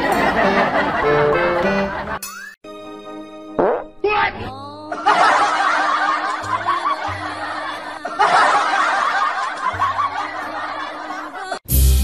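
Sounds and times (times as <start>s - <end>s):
group laughter: 0.0s - 2.3s, 4.9s - 11.6s
background music: 0.0s - 12.0s.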